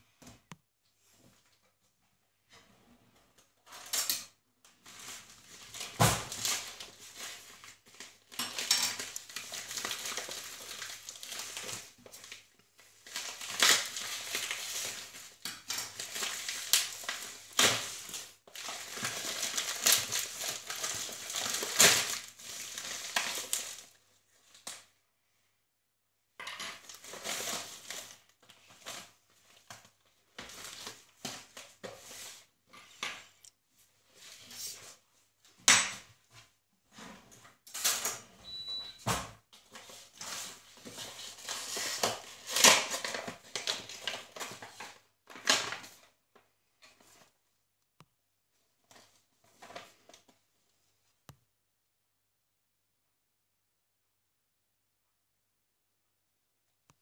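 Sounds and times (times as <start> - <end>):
plastic bag crinkling and tearing: 4.8 - 24.9, 26.7 - 32.5, 39.6 - 46.2.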